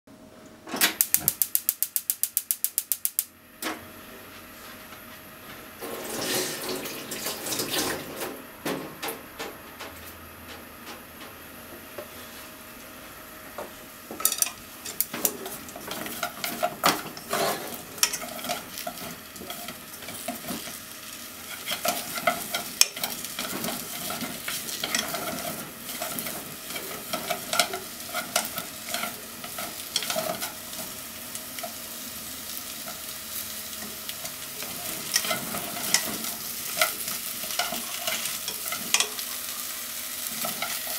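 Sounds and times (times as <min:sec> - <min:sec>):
potatoes sizzling in a pot: 0:05.8 - 0:07.8, 0:14.2 - 0:40.9.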